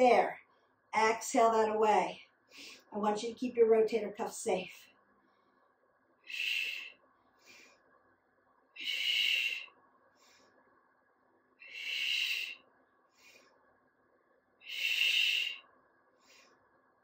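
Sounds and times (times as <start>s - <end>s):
faint inhales: 6.3s - 7.9s, 8.8s - 10.6s, 11.6s - 13.6s, 14.7s - 15.6s, 16.2s - 16.6s
woman exhaling forcefully: 14.7s - 15.6s.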